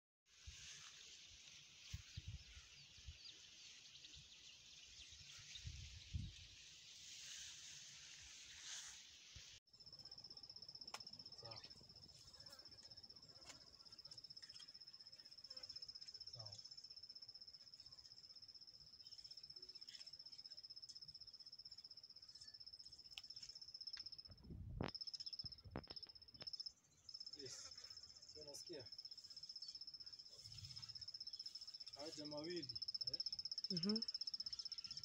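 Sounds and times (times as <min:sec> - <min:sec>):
brief hiss: 0:05.9 - 0:09.6
cricket trilling: 0:09.7 - 0:35.0.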